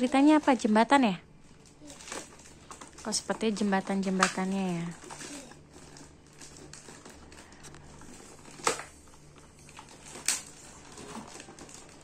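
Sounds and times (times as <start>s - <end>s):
plastic bag crinkling: 0.0s - 12.0s
sharp plastic crackles: 0.0s - 12.0s.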